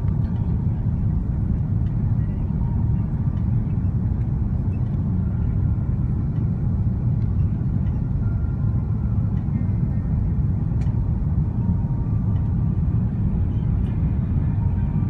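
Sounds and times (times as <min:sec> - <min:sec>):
aircraft cabin rumble: 0:00.0 - 0:15.0.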